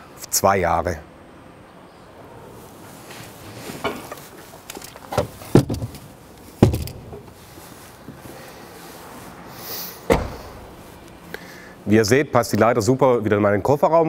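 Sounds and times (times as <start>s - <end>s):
ladder knocking and thudding: 5.0s - 7.4s.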